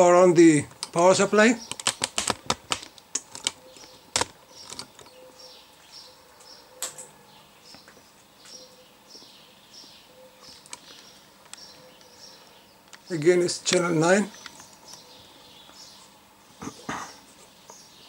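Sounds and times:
sharp clicks: 1.6s - 5.2s
bird chirping faintly: 3.6s - 18.0s.

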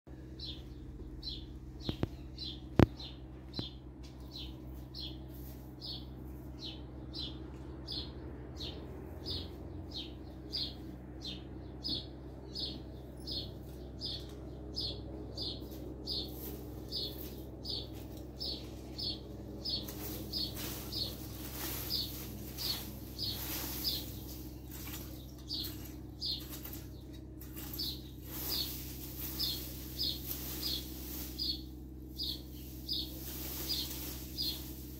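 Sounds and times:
bird chirping: 0.1s - 34.9s
metal rake scraping dirt: 15.6s - 34.9s.

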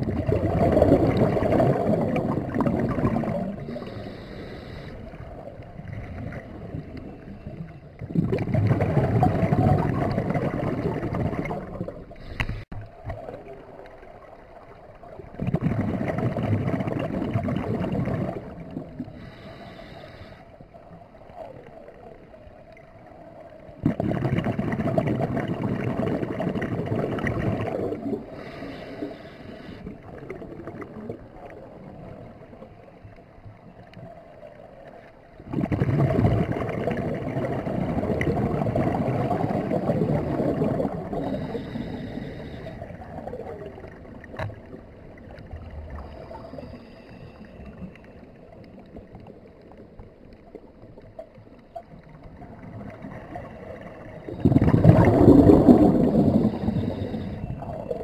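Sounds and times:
exhaled bubbles rushing: 0.0s - 4.2s, 4.9s - 19.5s, 23.6s - 29.2s, 29.9s - 32.8s, 35.4s - 58.0s
regulator inhale hiss: 3.6s - 5.4s, 12.1s - 12.7s, 19.0s - 20.6s, 28.2s - 30.1s, 41.1s - 43.2s, 45.9s - 48.0s, 56.0s - 58.0s.

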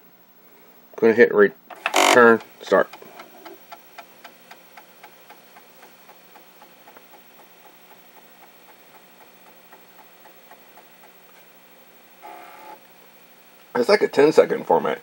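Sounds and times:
faint steady hum: 0.0s - 15.0s
floppy drive head clicking: 1.7s - 11.5s.

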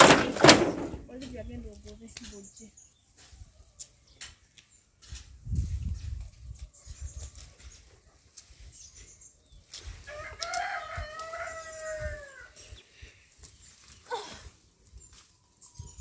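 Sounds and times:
rooster crowing: 10.1s - 12.6s.

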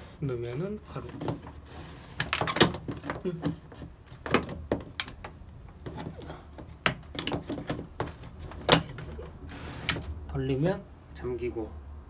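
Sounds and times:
plastic scraping slide: 0.9s - 4.2s, 7.3s - 10.2s.

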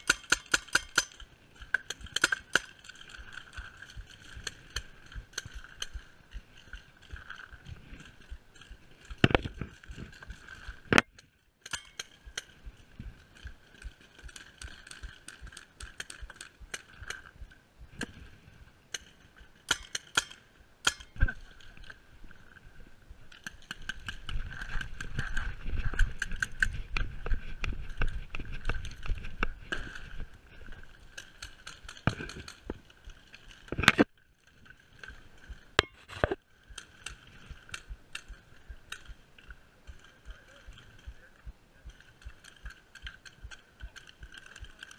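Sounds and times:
paintball markers firing: 0.0s - 1.2s.

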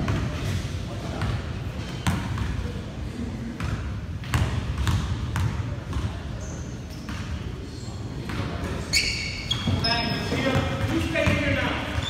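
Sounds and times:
basketball bouncing on gym floor: 2.0s - 2.6s, 3.6s - 6.2s, 9.5s - 12.0s.

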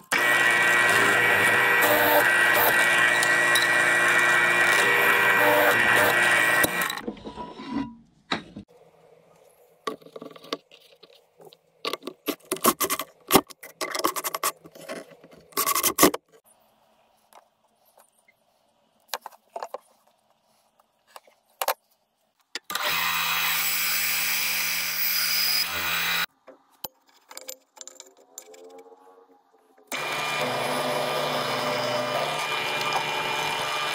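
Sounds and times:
band saw humming: 0.0s - 7.0s, 29.9s - 33.9s
power drill boring into wood: 0.1s - 7.0s, 22.7s - 26.3s, 29.9s - 33.9s.

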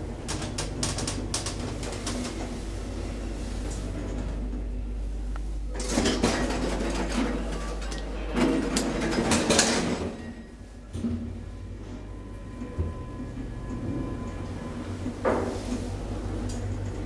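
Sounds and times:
steady low hum: 0.0s - 9.1s
elevator doors sliding: 0.0s - 17.0s.

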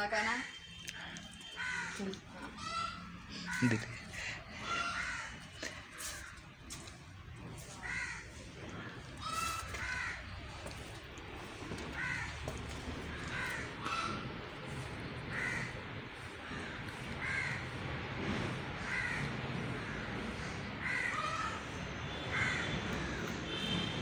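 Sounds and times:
crow cawing: 1.4s - 6.4s, 7.7s - 10.8s, 11.8s - 17.8s, 18.8s - 23.7s
steady low rumble: 1.7s - 23.5s.

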